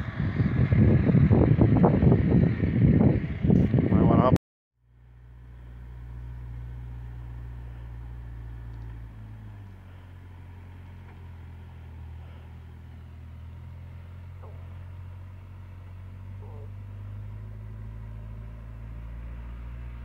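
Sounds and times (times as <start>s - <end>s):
vehicle engine running: 0.0s - 20.0s.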